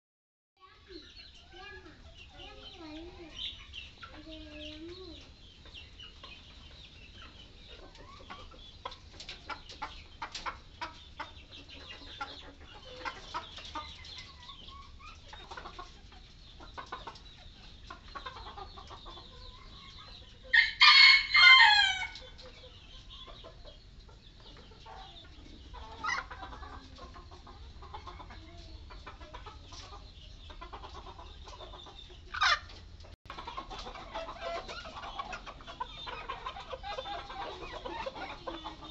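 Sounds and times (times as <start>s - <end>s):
chickens clucking: 0.6s - 38.9s
rooster crowing: 20.5s - 22.2s.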